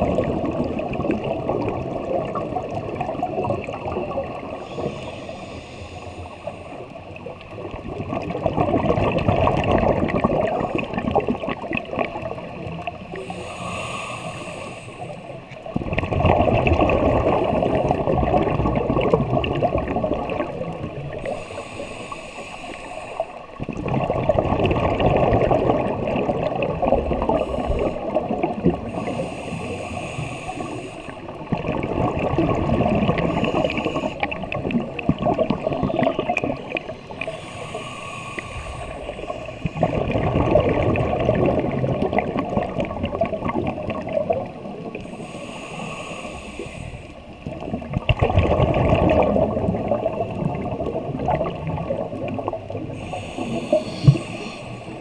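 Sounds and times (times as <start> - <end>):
bubbles gurgling underwater: 0.0 - 5.0, 6.8 - 13.4, 15.1 - 21.7, 23.4 - 37.8, 38.7 - 45.2, 47.3 - 55.0
regulator hiss: 4.6 - 6.9, 13.1 - 15.3, 21.2 - 23.4, 29.0 - 31.3, 37.1 - 39.8, 45.0 - 47.2, 53.0 - 55.0.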